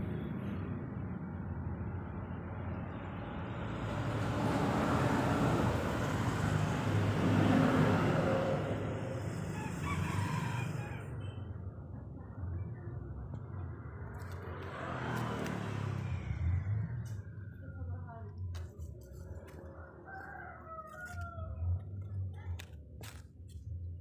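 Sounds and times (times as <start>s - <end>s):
outdoor background noise: 0.0s - 24.0s
rooster crowing: 9.4s - 11.2s, 19.6s - 22.0s.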